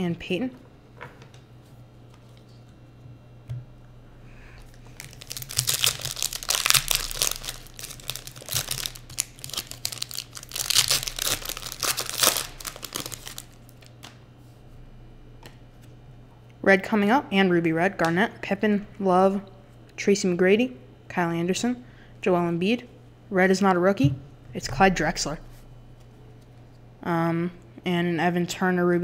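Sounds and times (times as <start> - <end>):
foil wrapper crinkling and tearing: 4.8 - 14.2.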